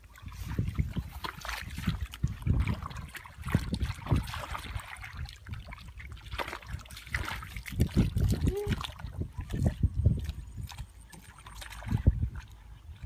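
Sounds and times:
hands splashing in muddy water: 0:00.0 - 0:13.0.

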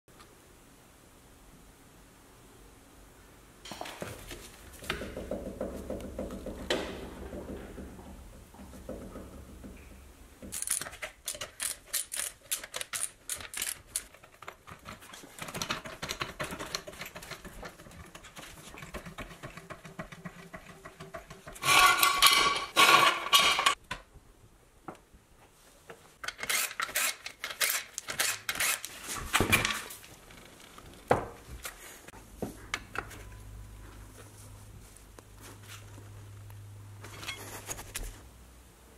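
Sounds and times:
hand tools clanking: 0:10.5 - 0:23.8
floor jack being worked: 0:13.6 - 0:23.8.

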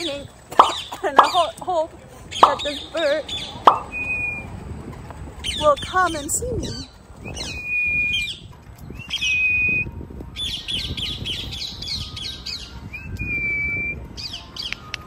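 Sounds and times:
long level parrot whistles: 0:07.2 - 0:15.0.

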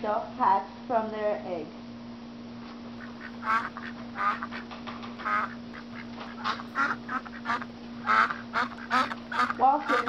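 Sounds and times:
steady low hum: 0:00.0 - 0:10.0
duck quacking: 0:03.0 - 0:10.0.

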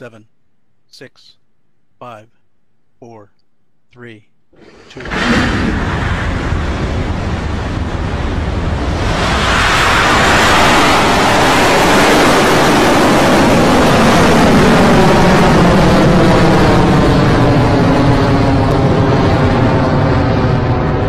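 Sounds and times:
rocket engines rumbling: 0:04.6 - 0:21.0.

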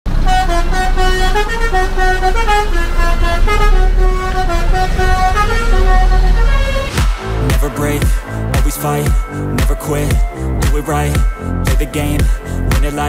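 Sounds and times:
bus musical horn melody: 0:00.1 - 0:08.5
bus engine rumble: 0:00.1 - 0:13.0.

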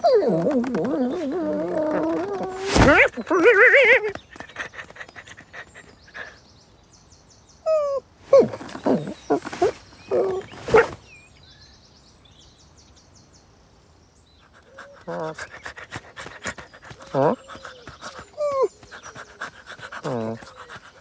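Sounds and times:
cartoon dog whine: 0:00.0 - 0:04.1
birdsong twitters: 0:00.0 - 0:21.0.

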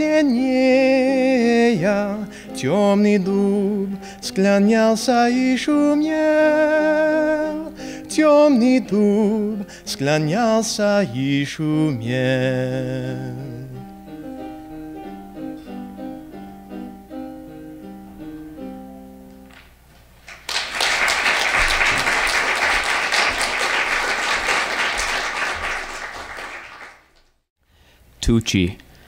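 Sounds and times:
instrumental accompaniment: 0:13.7 - 0:19.6
audience applauding: 0:20.3 - 0:27.3.

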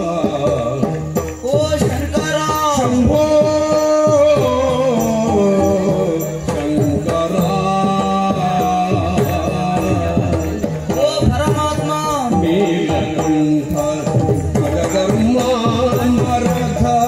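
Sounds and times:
hand drum strokes: 0:00.0 - 0:17.0.

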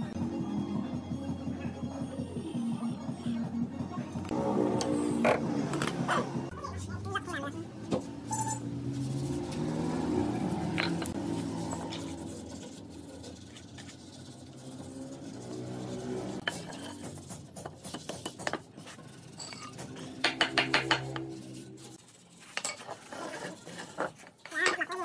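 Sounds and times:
hammer striking wood: 0:20.2 - 0:21.2.

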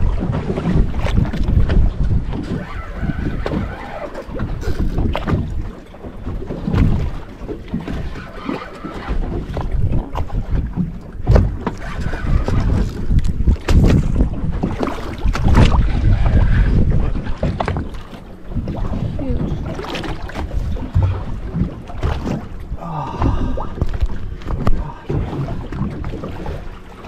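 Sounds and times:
wind buffeting microphone: 0:00.0 - 0:26.9
water lapping against boat: 0:00.0 - 0:27.0
knocks against hull: 0:04.4 - 0:08.0, 0:09.1 - 0:11.8, 0:12.4 - 0:16.0, 0:18.6 - 0:22.6, 0:23.2 - 0:26.7.

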